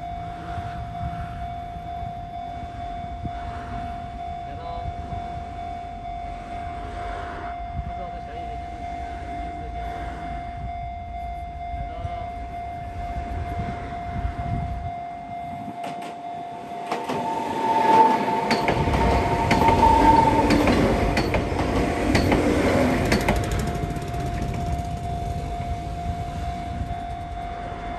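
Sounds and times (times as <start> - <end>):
level crossing alarm: 0.0 - 27.9
train wheels clacking: 15.8 - 27.9
wheel squeal: 16.8 - 27.9.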